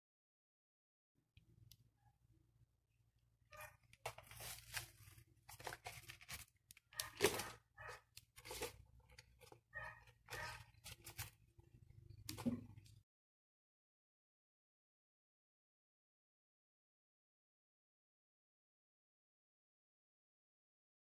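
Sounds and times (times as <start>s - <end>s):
silicone liner rustling and scraping: 4.0s - 11.5s.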